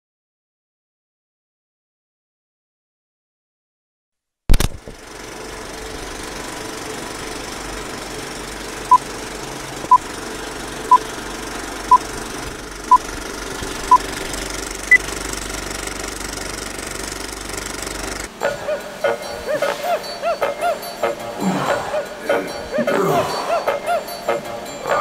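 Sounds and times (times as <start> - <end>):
film projector whirring clatter: 4.5 - 18.4.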